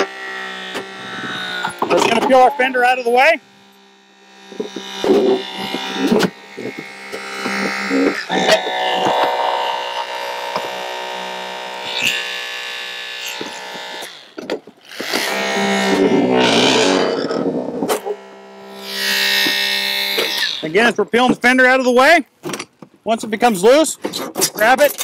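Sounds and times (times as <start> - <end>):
hydraulic spreader buzzing hum: 0.0 - 21.6
sheet metal cracking and creaking: 0.6 - 3.4.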